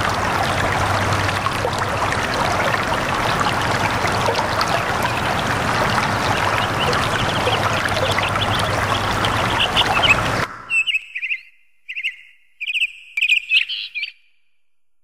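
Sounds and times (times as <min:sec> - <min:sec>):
water rushing: 0:00.0 - 0:10.8
small birds chirping: 0:04.2 - 0:14.2.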